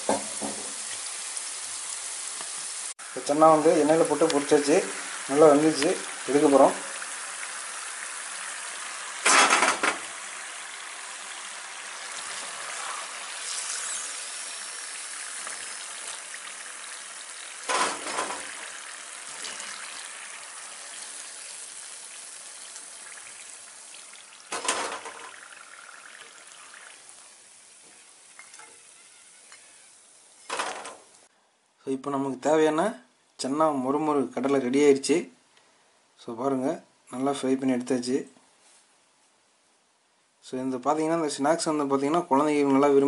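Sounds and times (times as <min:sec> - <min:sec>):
deep-frying sizzle: 0:00.0 - 0:31.3
steel skimmer clattering on pan: 0:09.2 - 0:10.1, 0:17.6 - 0:18.6, 0:24.5 - 0:25.4.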